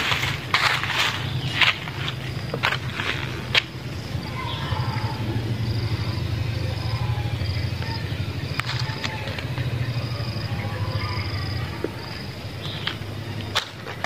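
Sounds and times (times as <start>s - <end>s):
dry leaves crackling underfoot: 0.0s - 5.1s, 7.8s - 10.2s
insect trill: 0.0s - 14.0s
steady low hum: 0.0s - 14.0s.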